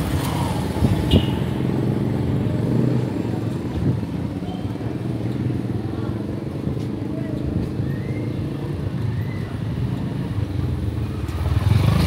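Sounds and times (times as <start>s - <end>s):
motorbike traffic: 0.0s - 12.0s
motorcycle engine passing: 11.2s - 12.0s.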